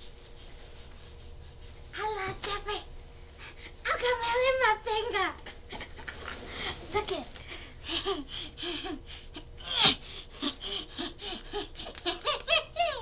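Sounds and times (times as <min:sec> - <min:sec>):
woman laughing: 0:07.8 - 0:13.0
woman's high cry: 0:12.5 - 0:13.0.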